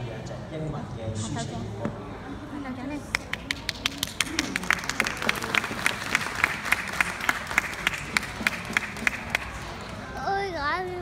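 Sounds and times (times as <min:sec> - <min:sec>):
close loud hand claps: 0:03.1 - 0:09.7
audience applauding: 0:03.2 - 0:10.0.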